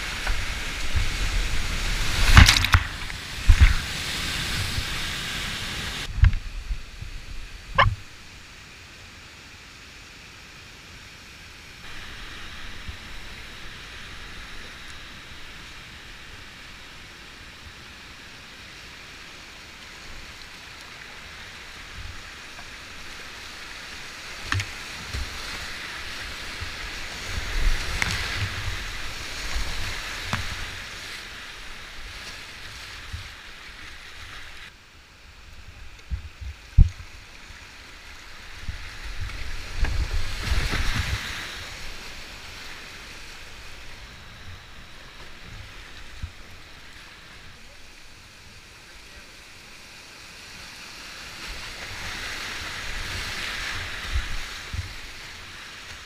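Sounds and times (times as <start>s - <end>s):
water splashes: 0.0s - 8.6s, 11.7s - 34.8s, 35.8s - 56.0s
paddle knocking hull: 7.7s - 8.1s.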